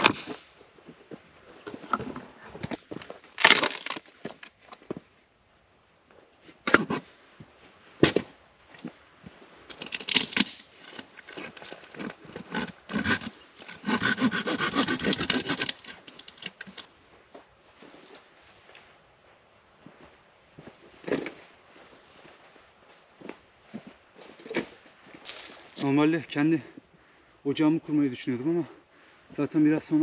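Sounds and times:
firewood cracking: 0:01.6 - 0:04.6, 0:09.7 - 0:16.9
hand saw sawing wood: 0:11.3 - 0:16.8.

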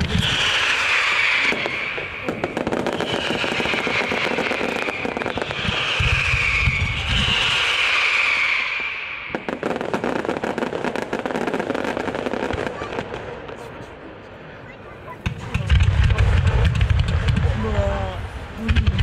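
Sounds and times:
fireworks crackling pops: 0:00.0 - 0:13.9, 0:15.1 - 0:19.0
fireworks booms: 0:00.0 - 0:14.1, 0:15.1 - 0:19.0
fireworks hissing rush: 0:00.0 - 0:14.4.

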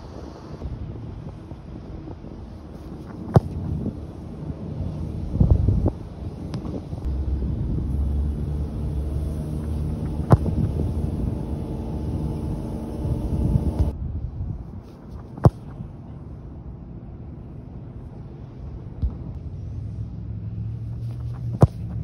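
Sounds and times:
steady low hum: 0:00.0 - 0:22.0
wind noise: 0:00.0 - 0:22.0
football being kicked: 0:03.1 - 0:03.9, 0:09.3 - 0:13.0, 0:15.2 - 0:15.8, 0:21.3 - 0:22.0.

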